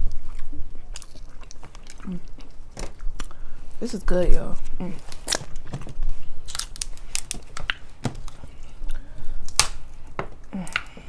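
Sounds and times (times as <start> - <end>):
chewing: 0.0 - 3.7
shells cracking and snapping: 5.1 - 11.0.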